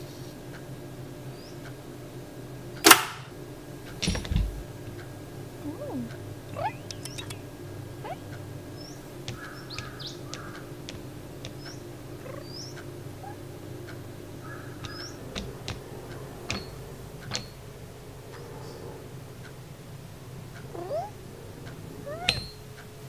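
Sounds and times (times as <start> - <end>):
steady low hum: 0.0 - 23.0
high chirpy squeaks: 5.7 - 10.6, 11.4 - 13.4, 20.7 - 21.2, 22.0 - 22.6
light clicks and taps: 9.2 - 11.8, 14.8 - 17.6.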